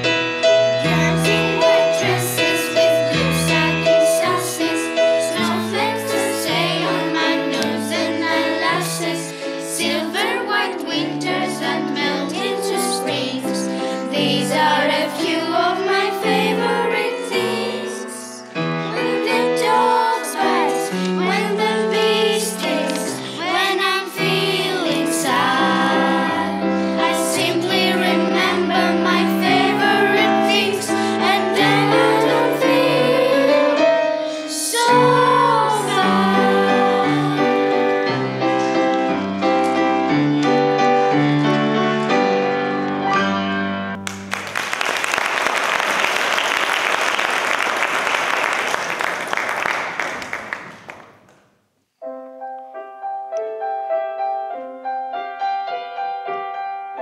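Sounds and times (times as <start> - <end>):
children's choir singing: 0.0 - 40.6
piano accompaniment: 0.0 - 51.3, 52.0 - 57.0
audience applause: 44.0 - 51.3.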